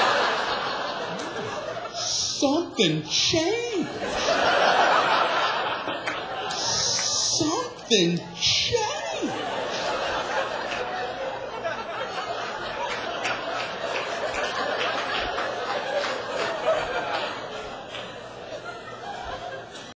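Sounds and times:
audience laughing: 0:00.0 - 0:20.0
audience applauding: 0:05.8 - 0:07.4, 0:12.5 - 0:18.2.

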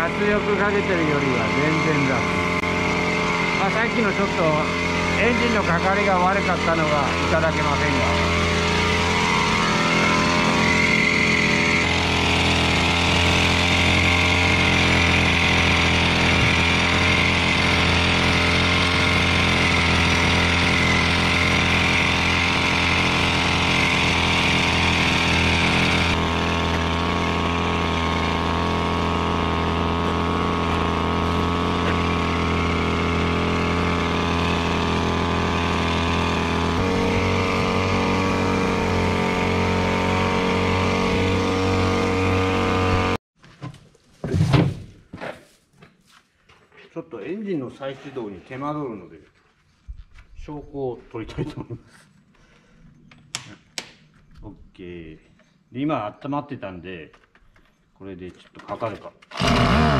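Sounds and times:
small engine running: 0:00.0 - 0:43.2, 0:59.2 - 0:59.9.

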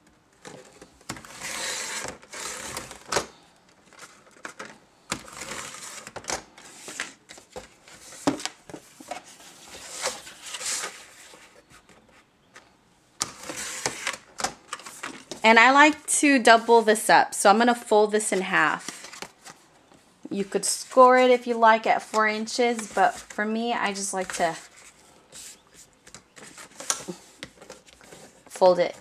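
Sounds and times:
cardboard scraping rustles: 0:00.4 - 0:12.3, 0:13.3 - 0:16.0, 0:22.3 - 0:29.0.

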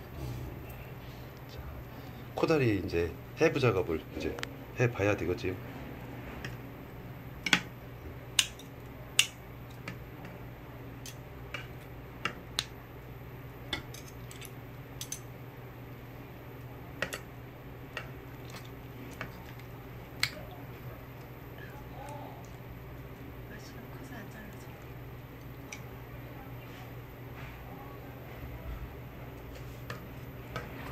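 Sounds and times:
low hum: 0:00.0 - 0:02.4.

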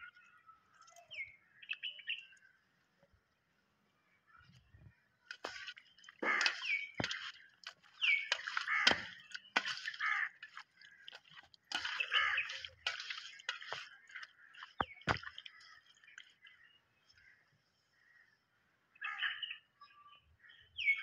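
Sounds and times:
wet squelching of fish in bowl: 0:05.2 - 0:16.4.

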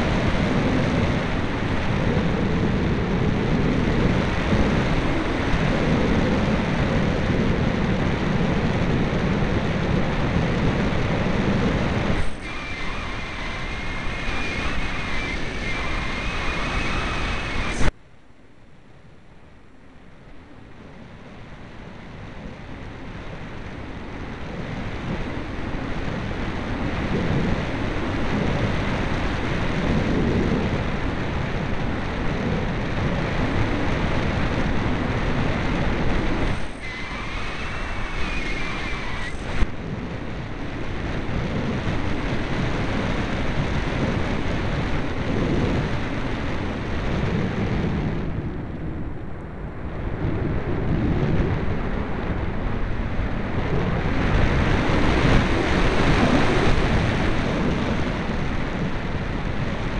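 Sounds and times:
airflow rushing over microphone: 0:00.0 - 0:18.0, 0:19.8 - 0:59.9
faint wavering whistle: 0:12.2 - 0:17.9, 0:36.5 - 0:39.6.

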